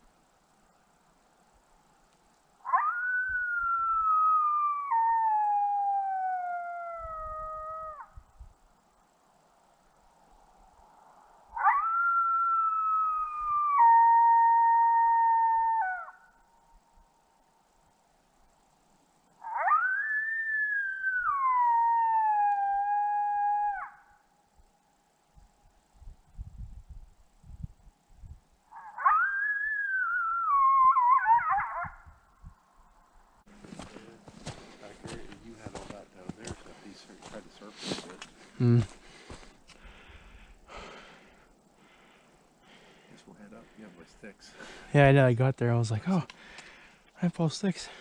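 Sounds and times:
electronic coyote howl: 2.6s - 8.2s, 11.5s - 16.4s, 19.4s - 24.2s, 28.7s - 32.2s.

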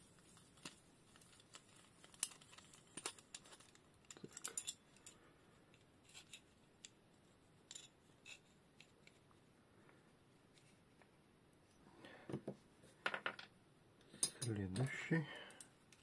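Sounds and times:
small metal parts clicking: 0.6s - 7.0s.

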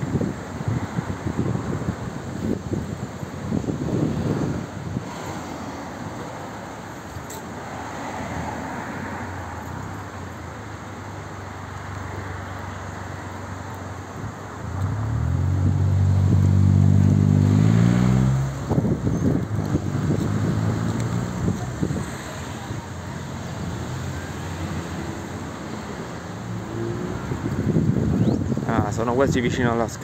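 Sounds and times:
car passing: 0.0s - 29.4s
street traffic: 0.0s - 30.0s
car engine revving: 14.6s - 28.4s.

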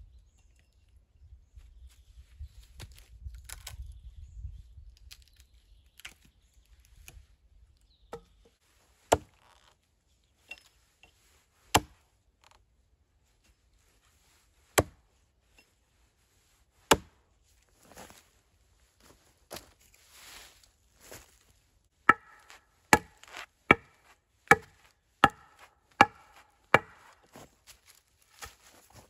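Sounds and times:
hatchet chopping log: 9.1s - 9.4s, 11.7s - 12.0s, 14.8s - 15.0s, 16.9s - 17.2s, 22.1s - 27.4s.

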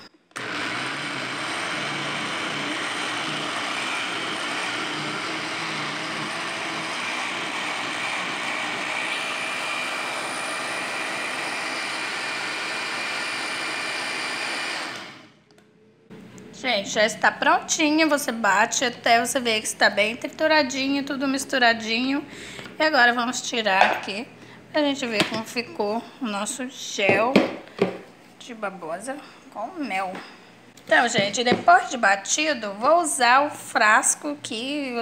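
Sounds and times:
blender motor running: 0.0s - 15.3s.

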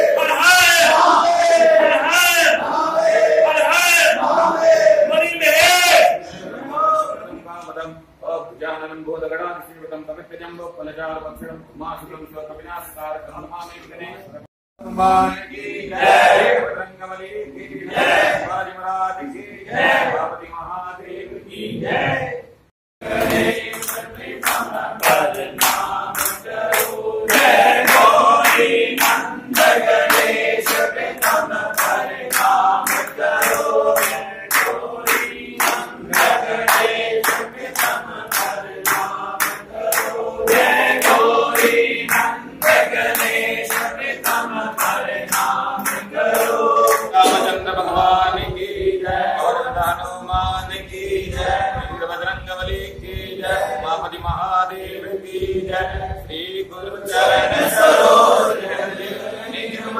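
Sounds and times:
group singing a hymn: 0.0s - 6.7s, 14.8s - 59.9s
rhythmic hand-clapping: 23.0s - 48.7s.

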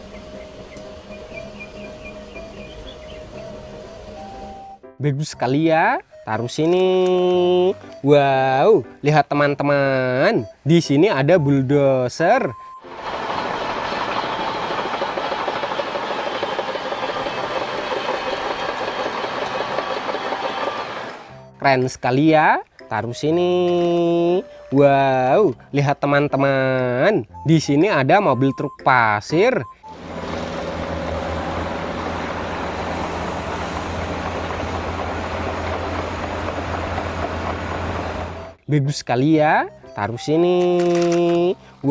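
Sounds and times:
diesel engine running: 0.0s - 4.8s, 12.8s - 21.5s, 29.8s - 38.6s
steel tracks clattering: 12.9s - 21.3s, 30.0s - 38.6s.

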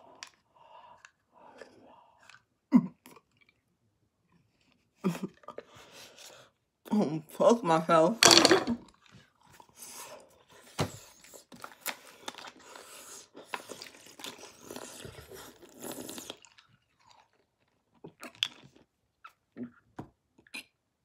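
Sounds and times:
person crunching hard candies: 11.2s - 18.8s.

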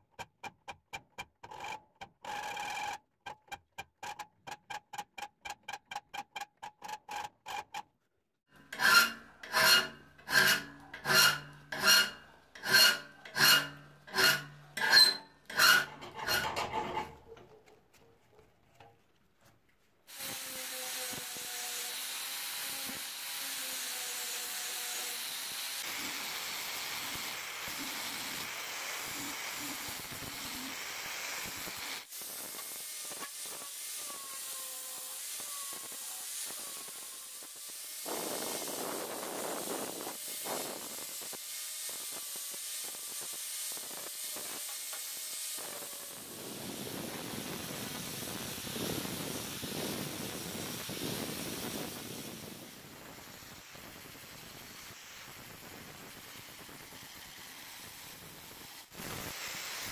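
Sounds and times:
angle grinder grinding steel: 8.5s - 17.2s, 20.1s - 30.8s, 31.5s - 47.5s
hand file rasping on steel: 8.6s - 17.6s.

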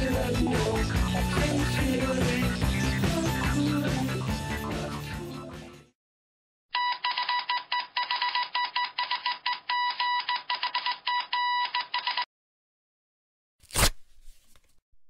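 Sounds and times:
background music: 0.0s - 5.9s.

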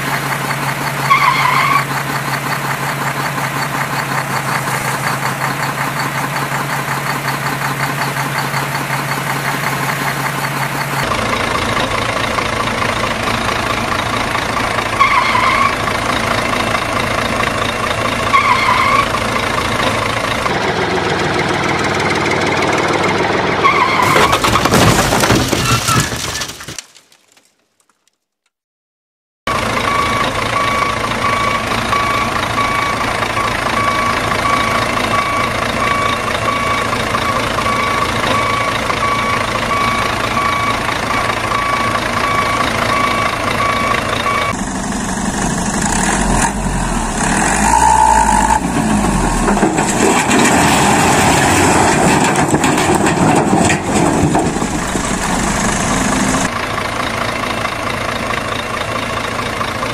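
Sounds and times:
truck engine running: 0.0s - 25.5s, 29.5s - 59.9s
reversing alarm beeping: 29.8s - 44.8s.

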